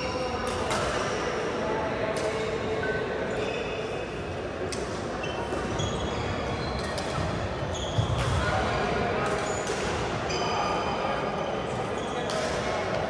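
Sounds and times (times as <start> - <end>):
steady hall hum: 0.0 - 13.0
shoes squeaking on court floor: 5.0 - 8.4
racket hitting shuttlecock: 12.3 - 12.7.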